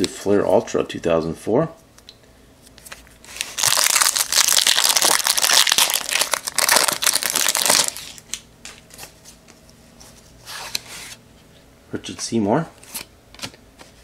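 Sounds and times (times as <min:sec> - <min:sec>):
foil wrapper crinkling: 0:03.3 - 0:08.3.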